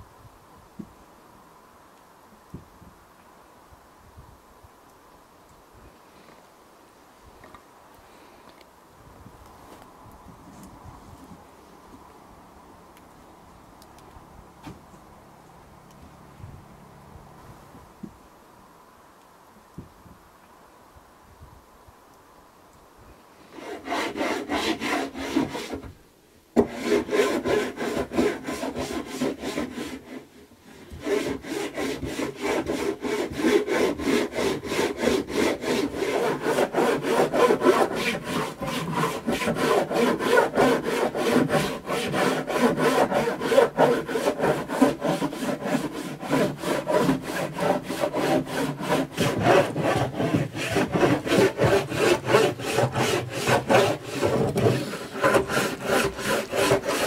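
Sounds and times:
hand-sanding wooden floorboards: 0:23.6 - 0:25.9, 0:26.6 - 0:57.0.

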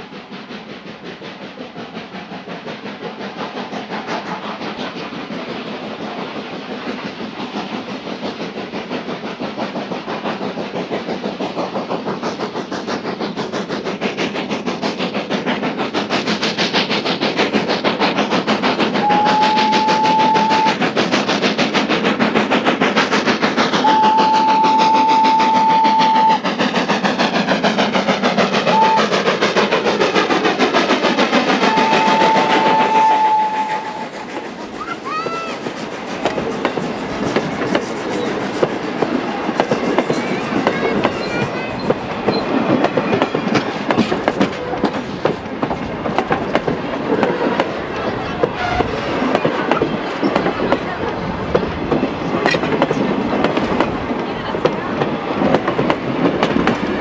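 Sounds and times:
steam locomotive running past: 0:00.0 - 0:57.0
train whistle: 0:19.0 - 0:20.8, 0:23.8 - 0:26.4, 0:28.7 - 0:29.2, 0:31.6 - 0:34.2, 0:48.4 - 0:49.0.

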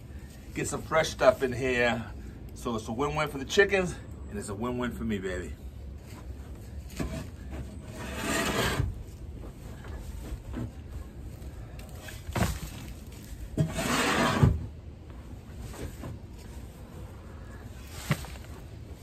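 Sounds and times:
shovel scraping wood shavings: 0:06.8 - 0:09.1, 0:11.8 - 0:14.6.

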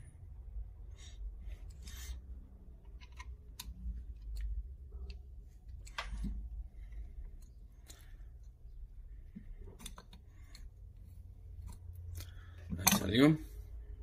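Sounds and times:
screwdriver clicking and scraping metal: 0:02.8 - 0:06.3.

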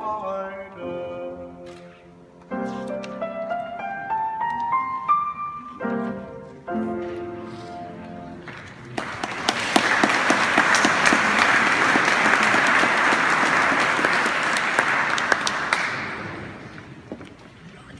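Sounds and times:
audience applauding: 0:08.4 - 0:17.1.

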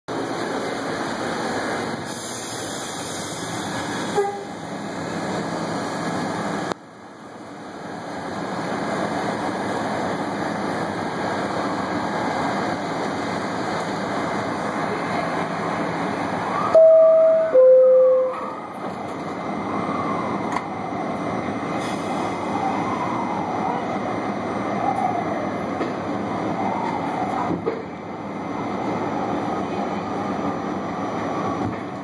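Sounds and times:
subway car rumble: 0:00.1 - 0:32.0
short horn toot: 0:04.1 - 0:04.6.

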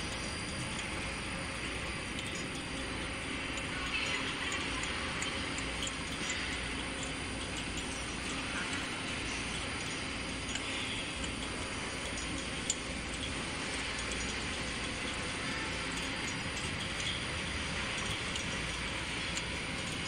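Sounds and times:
faint ticks: 0:00.0 - 0:20.0
machine hiss and hum: 0:00.0 - 0:20.0.

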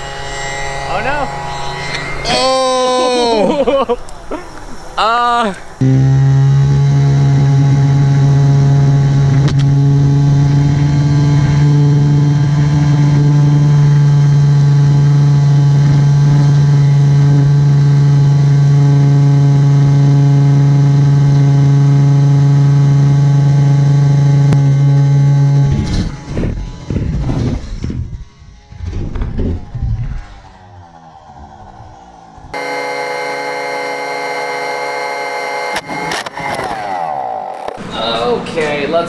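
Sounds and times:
leaf blower engine droning: 0:00.0 - 0:28.7, 0:32.5 - 0:38.4
small electric propeller motor: 0:32.5 - 0:36.8.

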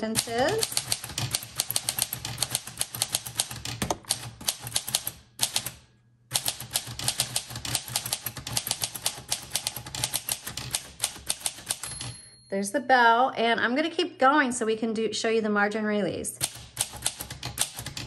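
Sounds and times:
typewriter keystroke clicks: 0:00.2 - 0:12.1, 0:16.4 - 0:18.0.

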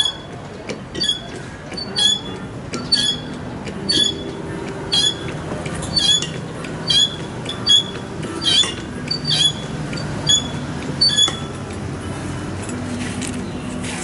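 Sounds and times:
high squeak of hydraulic pump: 0:00.0 - 0:11.6.

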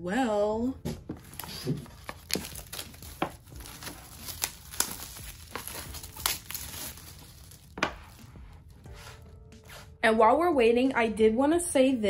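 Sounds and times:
plastic shrink-wrap crinkling: 0:01.2 - 0:08.4.

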